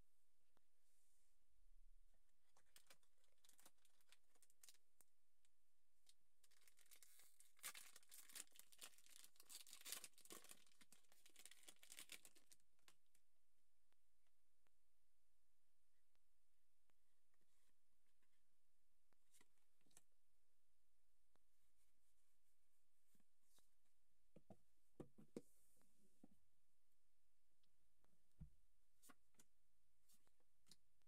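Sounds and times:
foil wrapper tearing and crinkling: 6.5 - 12.6.

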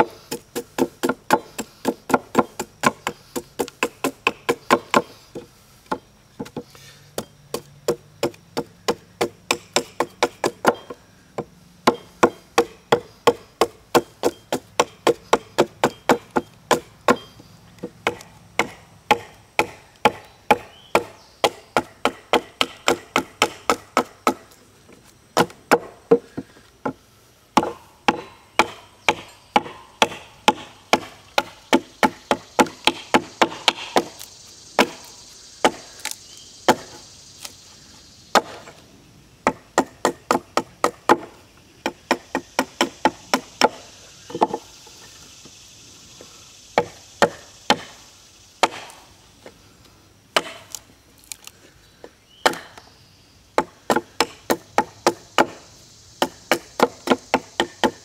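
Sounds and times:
edge tool chopping wooden log: 0.0 - 24.5, 25.4 - 27.0, 27.6 - 37.0, 38.3 - 38.8, 39.4 - 44.6, 46.8 - 48.0, 48.6 - 49.0, 50.3 - 51.4, 52.4 - 52.8, 53.6 - 55.6, 56.2 - 58.0.

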